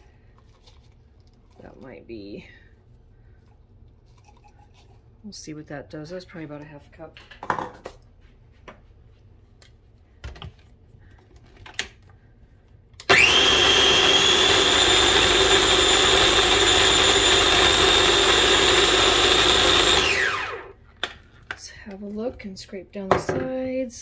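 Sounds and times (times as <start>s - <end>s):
food processor motor whining: 13.0s - 20.8s.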